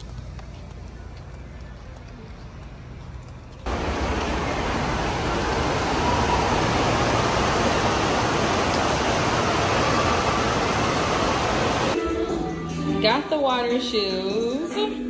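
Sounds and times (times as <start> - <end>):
outdoor ambience: 0.0 - 12.0
general din of indoor hall: 0.0 - 15.0
running water: 3.7 - 12.0.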